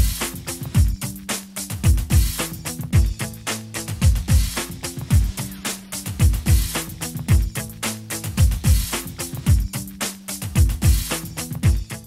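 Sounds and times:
funky drum beat and bass line: 0:00.0 - 0:12.0
deep kick drum hits: 0:04.0 - 0:05.4, 0:11.6 - 0:11.9.

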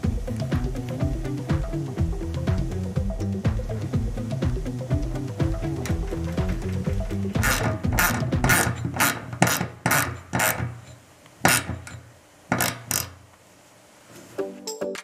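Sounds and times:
ratchet wrench clicking: 0:07.4 - 0:13.2.

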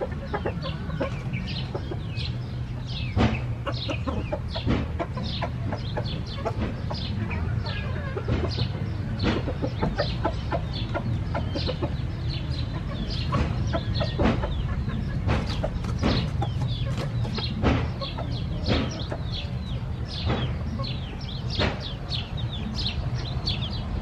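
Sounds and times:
chickens clucking: 0:00.0 - 0:24.0.

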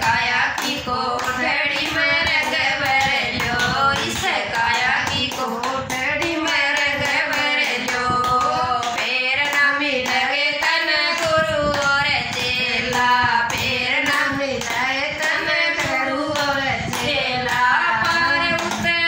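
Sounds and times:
hands clapping in time: 0:00.0 - 0:19.0
women singing folk song: 0:00.0 - 0:19.0.

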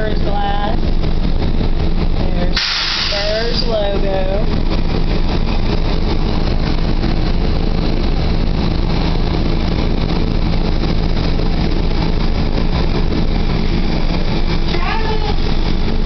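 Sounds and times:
low motor hum: 0:00.0 - 0:16.0
abrasive blast hissing: 0:02.6 - 0:03.8.

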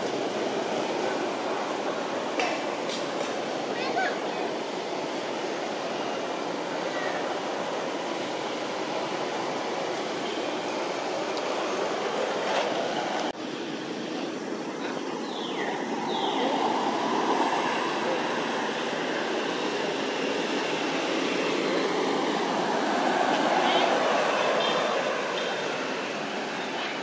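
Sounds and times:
rushing outdoor background noise: 0:00.0 - 0:27.0.

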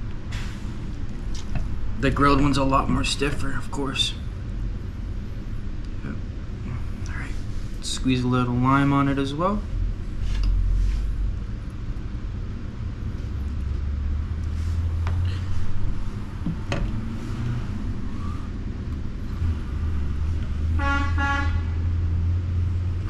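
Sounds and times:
short horn-like toot: 0:20.8 - 0:21.8.

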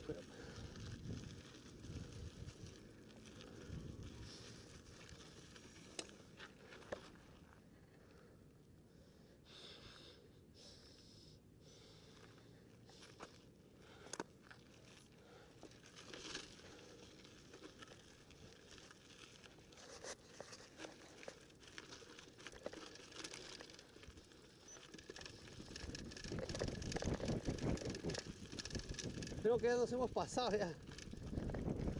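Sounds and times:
bike rattles and clicks: 0:00.0 - 0:07.5, 0:12.0 - 0:31.9
bike tyres crunching on gravel: 0:00.0 - 0:08.3, 0:11.8 - 0:31.9
wind rumble on microphone: 0:00.4 - 0:02.8, 0:25.5 - 0:31.9.

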